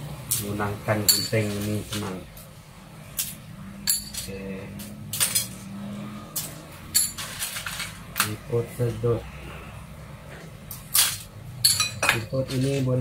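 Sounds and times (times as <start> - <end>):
shells clinking in metal bowl: 1.1 - 1.8, 3.2 - 5.7, 6.3 - 8.4, 10.8 - 13.0.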